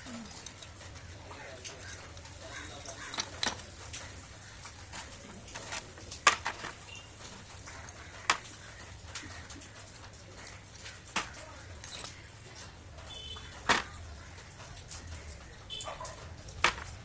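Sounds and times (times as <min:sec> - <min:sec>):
metallic clicks and taps of parts: 0:01.7 - 0:04.8, 0:05.5 - 0:09.7, 0:16.0 - 0:17.0.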